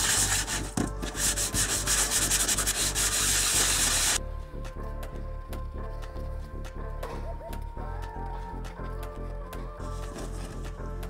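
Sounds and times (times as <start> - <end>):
hand sanding: 0.0 - 4.2
faint background music: 0.0 - 11.0.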